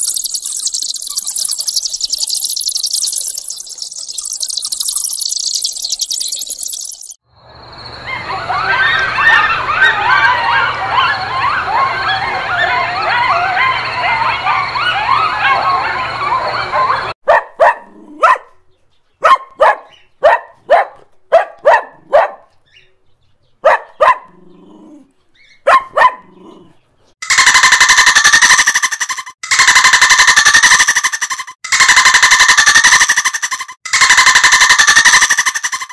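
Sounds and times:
coyotes yipping: 0.0 - 7.2, 8.1 - 18.5, 27.2 - 35.9
dog barking: 9.2 - 18.6, 19.2 - 22.5, 23.6 - 24.4, 25.6 - 26.6.

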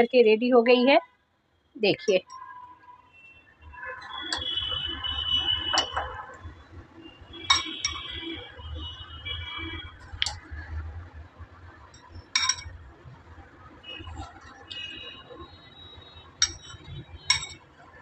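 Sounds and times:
spoon clinking on glass plate: 7.5 - 8.1, 12.4 - 12.7, 16.4 - 17.6.

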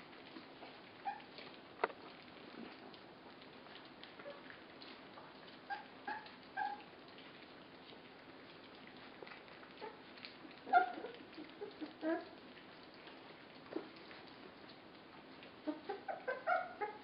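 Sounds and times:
puppies lapping and chewing: 0.0 - 17.0
puppy whimpering squeaks: 0.6 - 1.4, 5.7 - 6.9, 10.6 - 12.4, 15.6 - 17.0.

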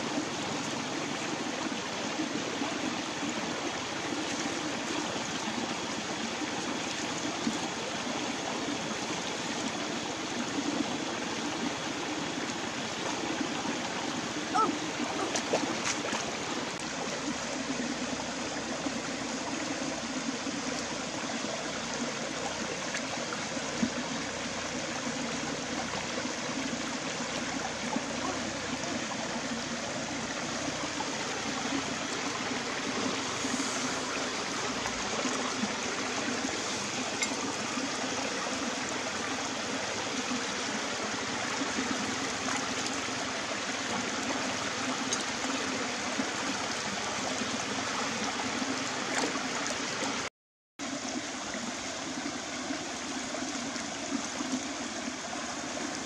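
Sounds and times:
stream flowing over stones: 0.0 - 56.0.

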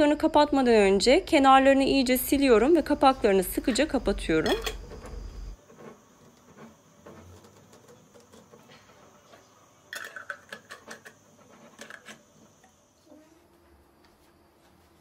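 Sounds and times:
metal lids screwed onto jars: 4.4 - 4.9.

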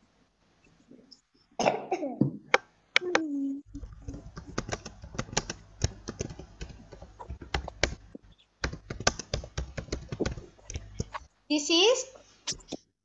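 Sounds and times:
typing on computer keyboard: 3.8 - 11.2.

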